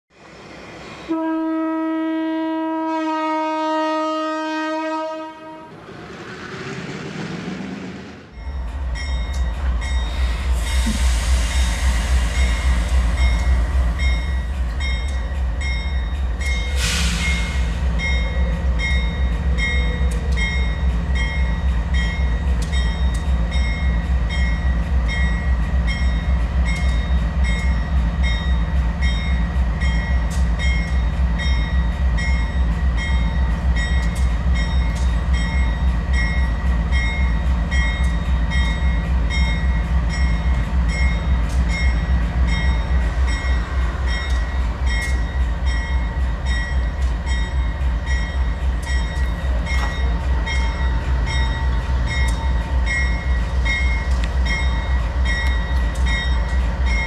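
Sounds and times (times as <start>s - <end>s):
horn-like chord: 1.1s - 5.7s
locomotive engine rumble: 6.1s - 57.0s.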